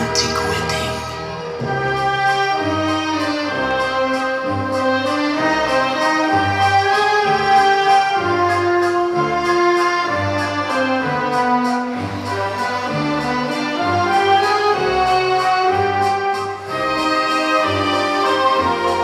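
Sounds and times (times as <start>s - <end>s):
orchestral music with brass: 0.0s - 19.0s.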